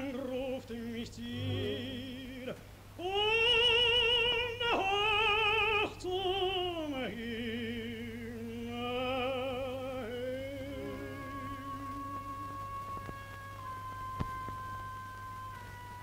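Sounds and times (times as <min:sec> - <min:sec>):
operatic tenor singing: 0:00.0 - 0:13.2
low soundtrack hum: 0:01.2 - 0:02.6, 0:10.0 - 0:13.0
orchestra holding a chord: 0:01.3 - 0:02.3, 0:10.6 - 0:13.1.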